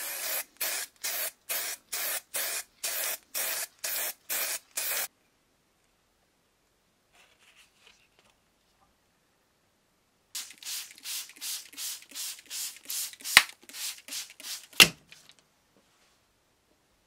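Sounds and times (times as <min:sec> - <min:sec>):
spray bottle spraying: 0:00.0 - 0:05.1, 0:10.4 - 0:15.3.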